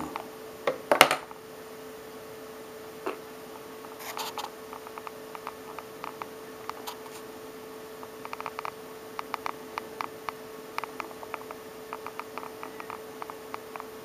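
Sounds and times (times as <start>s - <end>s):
faint electrical hum: 0.0s - 14.0s
light clicks and ticks: 8.1s - 13.9s.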